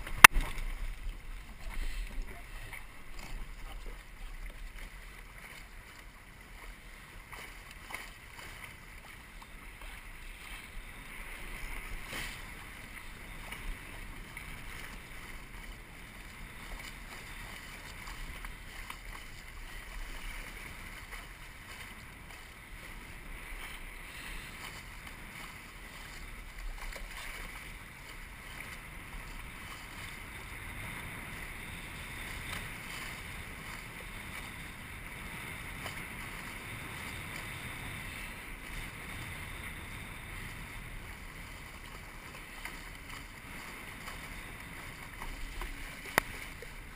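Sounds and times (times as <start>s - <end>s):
water rushing along hull: 0.0s - 46.9s
wind noise on microphone: 9.8s - 46.9s.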